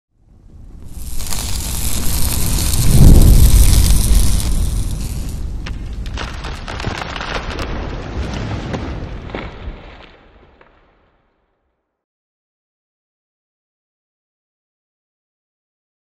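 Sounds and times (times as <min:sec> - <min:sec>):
rumbling crackling noise: 0:00.2 - 0:11.4.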